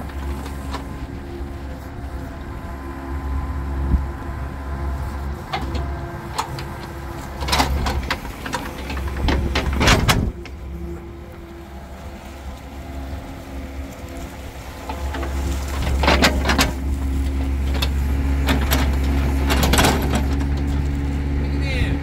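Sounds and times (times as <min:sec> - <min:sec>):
excavator engine running: 0:00.0 - 0:22.0
bucket clanks and scrapes: 0:14.8 - 0:21.2.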